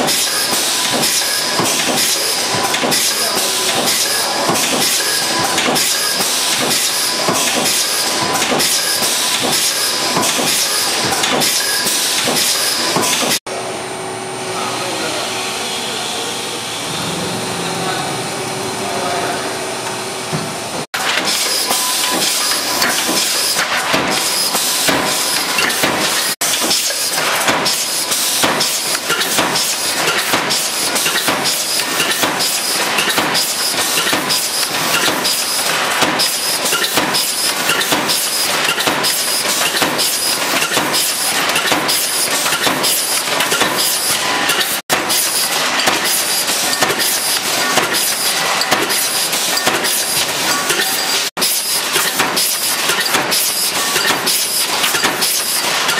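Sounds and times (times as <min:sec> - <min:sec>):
press clattering metal impacts: 0:21.0 - 0:55.9.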